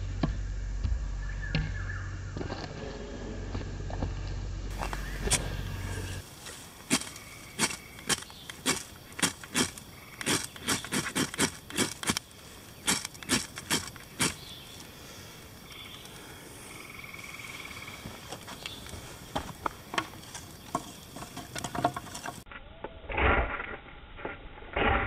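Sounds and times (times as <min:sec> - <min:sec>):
ferro rod scraping: 0:04.7 - 0:12.2.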